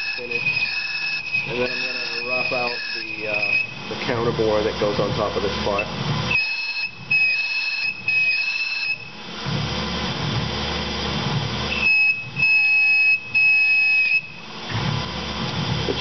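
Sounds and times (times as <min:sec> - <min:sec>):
boring bar chattering squeal: 0:00.0 - 0:09.2, 0:11.7 - 0:14.4
machine running hum: 0:00.0 - 0:16.0.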